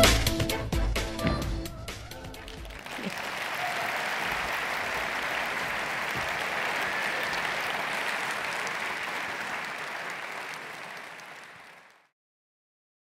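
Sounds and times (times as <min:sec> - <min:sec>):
audience applauding: 0:02.2 - 0:12.1.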